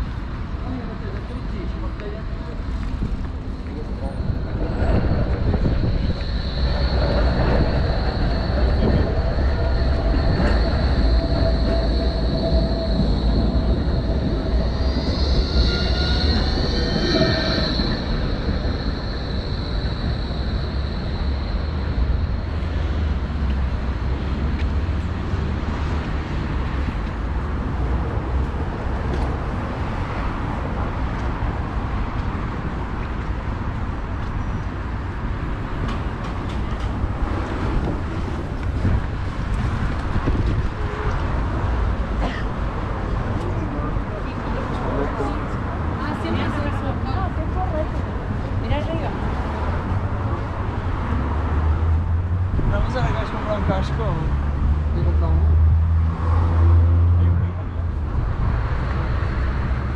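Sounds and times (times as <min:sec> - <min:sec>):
rail vehicle rumble: 0:00.0 - 0:59.9
wheel squeal: 0:04.0 - 0:23.6.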